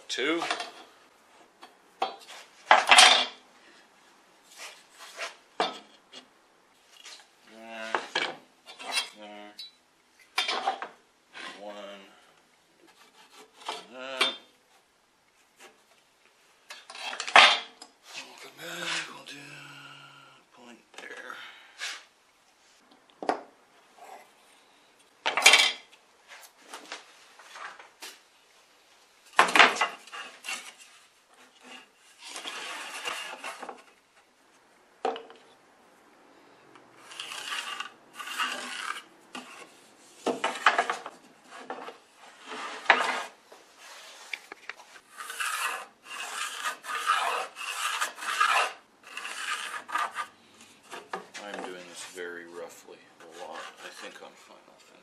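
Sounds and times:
tools sliding over wood: 29.4s - 34.0s, 37.0s - 52.4s
pencil scratching on wood: 37.0s - 39.8s, 45.1s - 51.2s, 53.2s - 54.2s.

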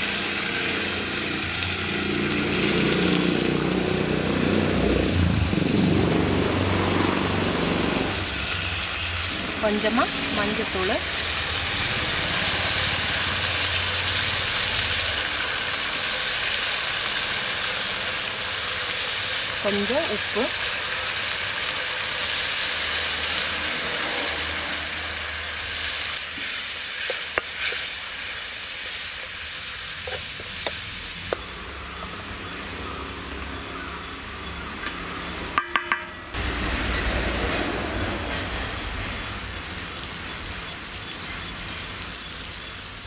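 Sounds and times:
spices sizzling in hot oil: 0.0s - 43.0s.

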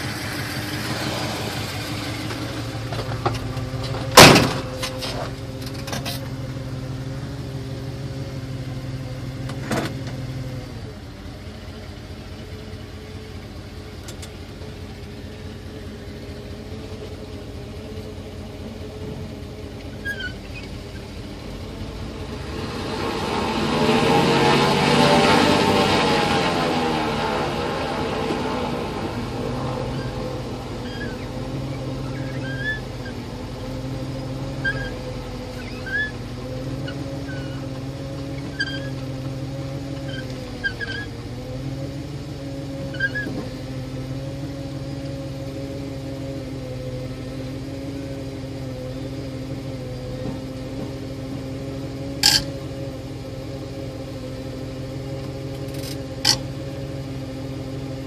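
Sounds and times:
engine idling: 0.0s - 58.0s
faint short squeaks: 19.8s - 21.1s, 30.8s - 31.3s, 32.0s - 33.2s, 34.6s - 36.2s, 36.8s - 39.1s, 42.9s - 43.6s, 52.2s - 52.5s.

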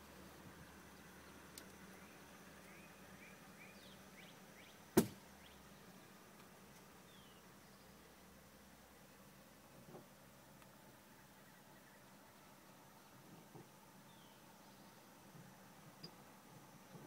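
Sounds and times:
sharp knock: 5.0s - 5.2s.

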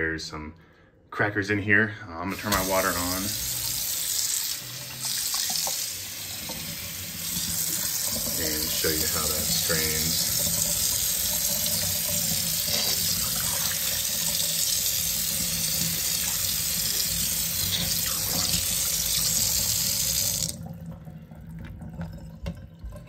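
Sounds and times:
water drips and trickling: 2.4s - 23.0s.

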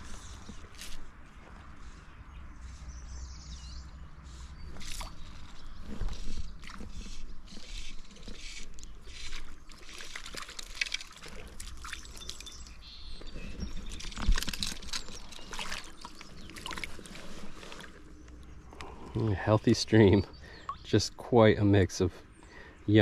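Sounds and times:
creek water trickling and splashing: 4.2s - 21.0s.

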